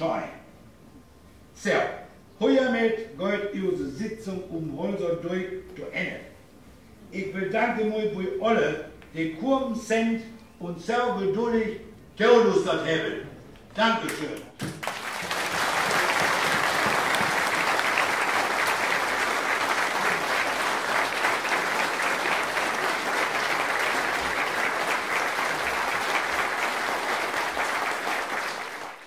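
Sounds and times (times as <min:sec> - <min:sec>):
audience applauding: 0:14.6 - 0:29.0.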